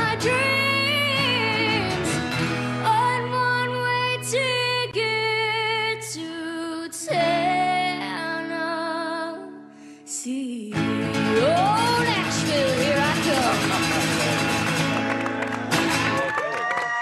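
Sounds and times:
girl singing country song: 0:00.0 - 0:14.7
guitar accompaniment: 0:00.0 - 0:17.0.

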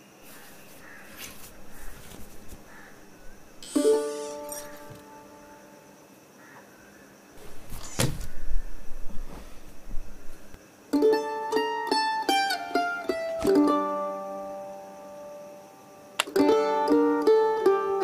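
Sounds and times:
rustling noise: 0:00.1 - 0:05.0, 0:07.4 - 0:10.6
plucked-string background music: 0:03.6 - 0:05.7, 0:10.9 - 0:18.0.

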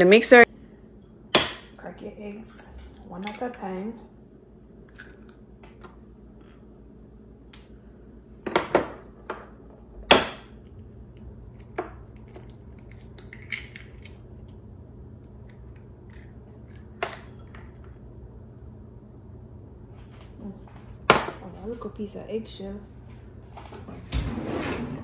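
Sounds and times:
eggshells cracking on glass bowl: 0:11.6 - 0:14.2.

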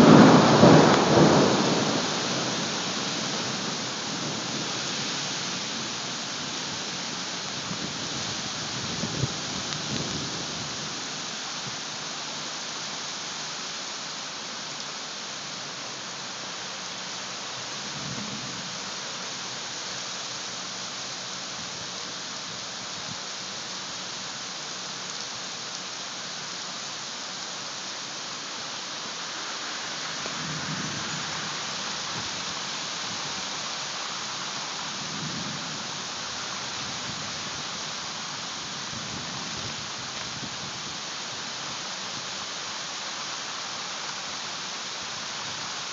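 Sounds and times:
thunder rumbling: 0:00.0 - 0:04.5
heavy rain hissing: 0:00.0 - 0:45.9.

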